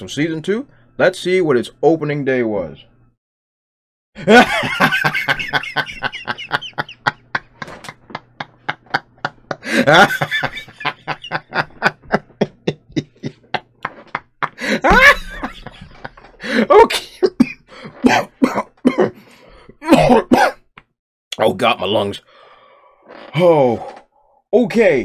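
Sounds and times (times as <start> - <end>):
man laughing hard: 4.2 - 19.2.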